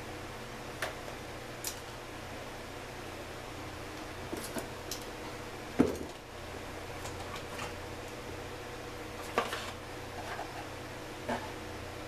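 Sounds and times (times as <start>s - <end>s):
steady low hum: 0.0s - 12.0s
tools set down on workbench: 5.8s - 6.2s.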